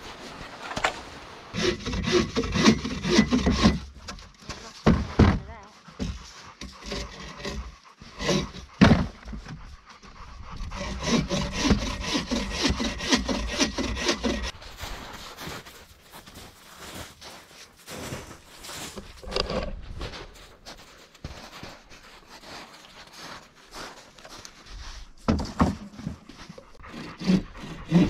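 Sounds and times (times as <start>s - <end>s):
hand saw cutting wood: 0.4s - 14.6s, 25.3s - 28.0s.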